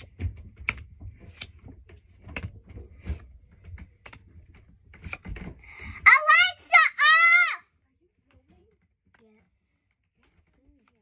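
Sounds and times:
trading cards clicking and flicking: 0.0s - 1.6s.

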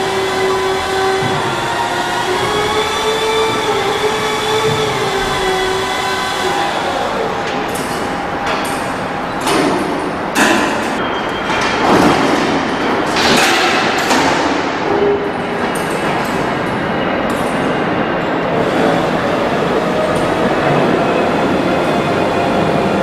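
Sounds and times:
metal sliding rumble: 0.0s - 23.0s
metal clanks and thuds: 1.1s - 1.7s.

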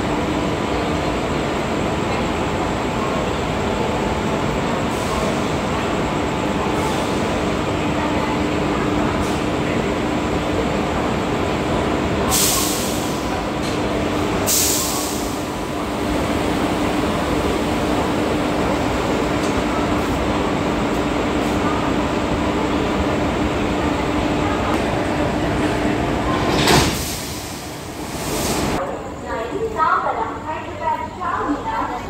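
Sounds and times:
electric locomotive idling hum: 0.0s - 32.0s
air hissing from brake hoses: 14.5s - 15.4s, 26.9s - 28.8s.

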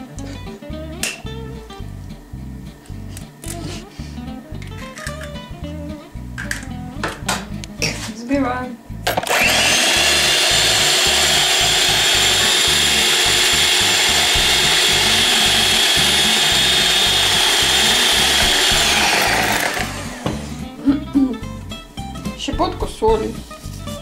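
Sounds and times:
electric hand mixer whisking: 9.2s - 20.7s.

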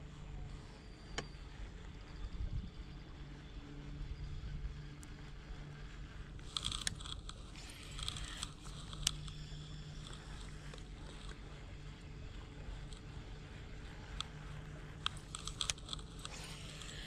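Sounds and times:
low steady hum: 0.0s - 17.0s
fishing reel clicking and rattling: 5.0s - 17.0s.

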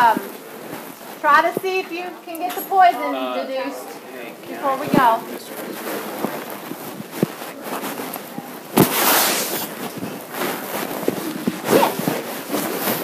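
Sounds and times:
rushing hiss: 8.8s - 9.8s.

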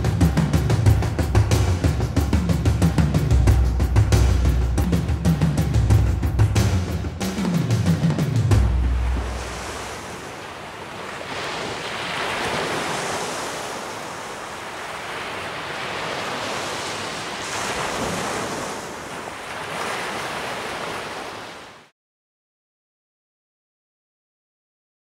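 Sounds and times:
sea surf washing onto shore: 8.6s - 21.9s.

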